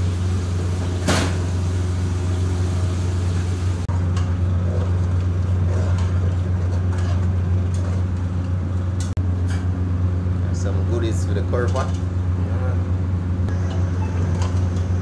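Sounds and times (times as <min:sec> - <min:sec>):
kitchen equipment humming: 0:00.0 - 0:15.0.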